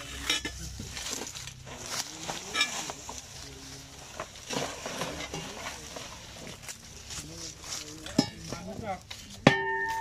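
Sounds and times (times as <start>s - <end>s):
metal tool scraping and knocking: 0.0s - 0.9s
leaves rustling: 0.0s - 10.0s.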